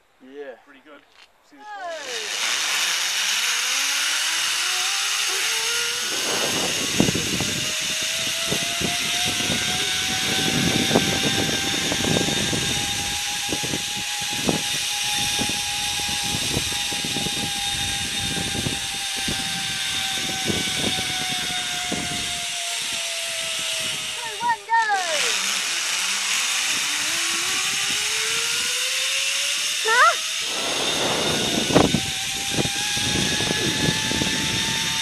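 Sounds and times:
zipline pulleys whining on cable: 0:01.7 - 0:35.0
wind buffeting microphone: 0:05.5 - 0:24.6, 0:26.6 - 0:29.0, 0:30.2 - 0:35.0.

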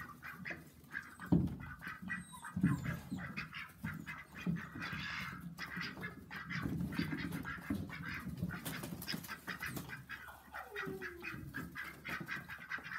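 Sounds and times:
ducks quacking: 0:00.0 - 0:12.9.

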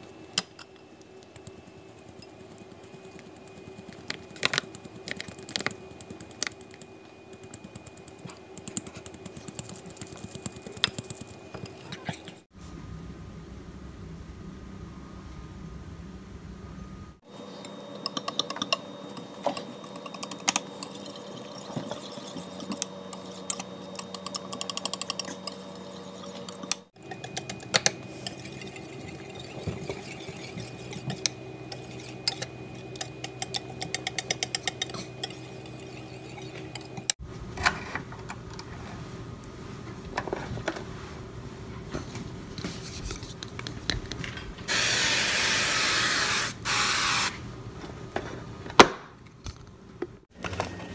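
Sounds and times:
whisk clinking against bowl: 0:18.0 - 0:37.1.

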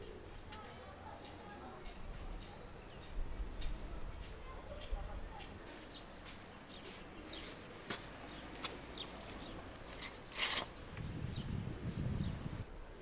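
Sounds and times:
small birds chirping: 0:00.0 - 0:13.0
footsteps on sandy ground: 0:04.2 - 0:11.4.

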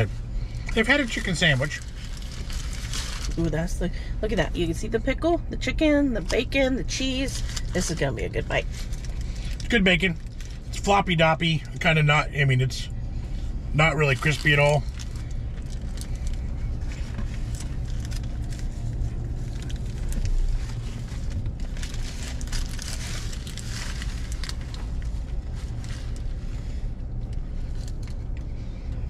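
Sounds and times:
car engine idling hum: 0:00.0 - 0:29.0
paper wrapper crinkling: 0:00.8 - 0:03.4, 0:14.0 - 0:26.2.

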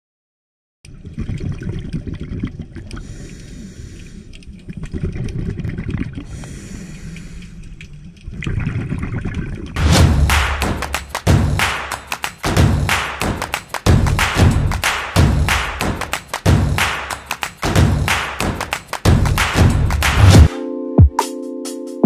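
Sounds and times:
muffled underwater bubbling: 0:00.9 - 0:09.8
small crackles and clicks: 0:07.1 - 0:08.5.

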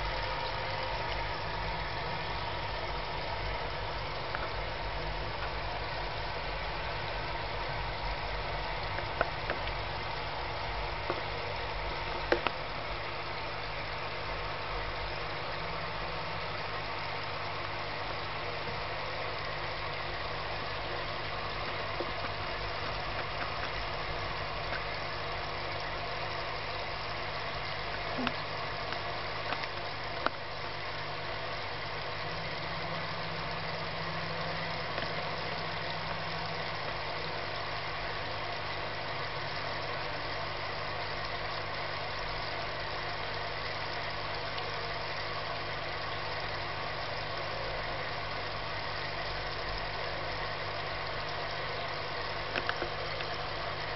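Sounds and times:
aquarium pump humming: 0:00.0 - 0:53.9
faint clicks: 0:12.1 - 0:12.6, 0:27.9 - 0:30.4, 0:34.8 - 0:35.2, 0:52.5 - 0:53.4.

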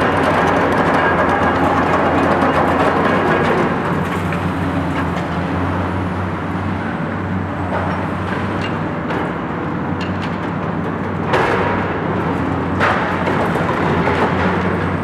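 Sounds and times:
knocks and cracks of concrete: 0:00.0 - 0:04.4, 0:11.3 - 0:15.0
excavator diesel engines running: 0:00.0 - 0:15.0.

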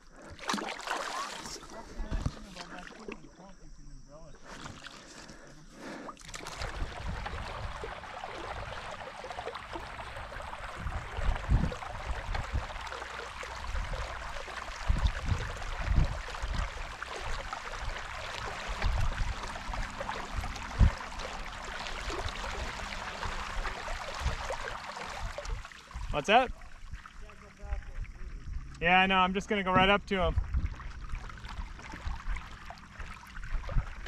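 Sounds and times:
water swishing along hull: 0:00.0 - 0:34.0.

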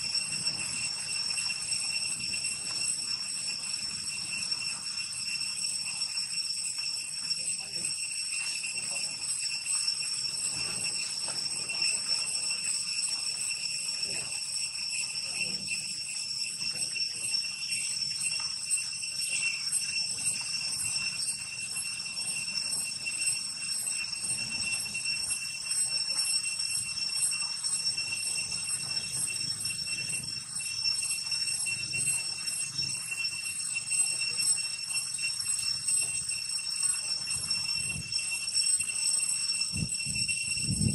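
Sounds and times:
forest insects buzzing: 0:15.2 - 0:18.4.

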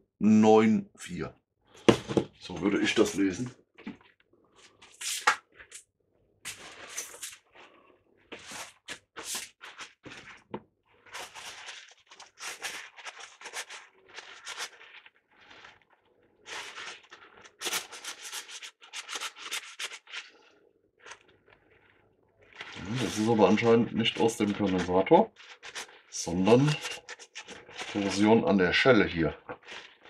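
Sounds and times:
scraping on capacitor: 0:06.4 - 0:07.5, 0:22.6 - 0:28.4.

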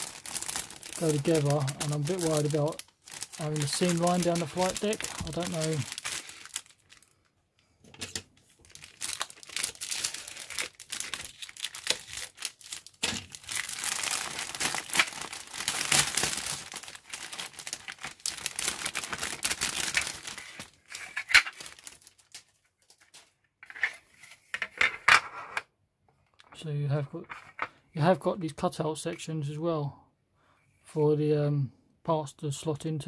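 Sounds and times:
plastic bag crinkling: 0:00.0 - 0:07.3, 0:08.4 - 0:23.3.

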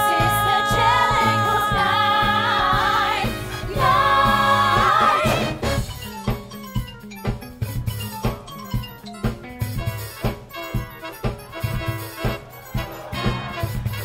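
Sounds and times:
backing track: 0:00.0 - 0:14.0.

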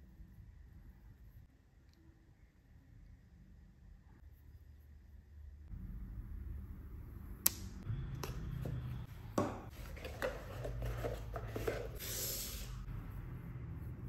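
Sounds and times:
knocks and rustles on table: 0:08.7 - 0:12.0.

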